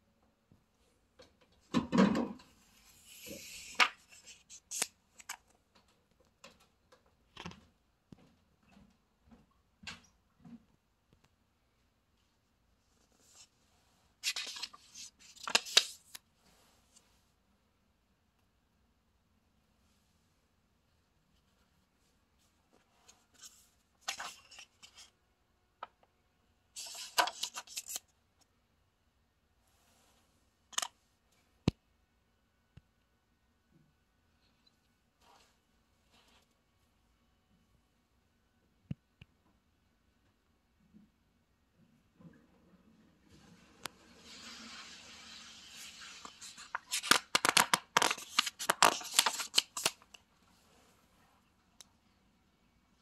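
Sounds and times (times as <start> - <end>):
book pages rustling: 2.8 - 5.5, 14.2 - 16.2, 22.8 - 25.1, 26.8 - 28.1, 45.8 - 50.2
page crackling and flapping: 46.1 - 50.0.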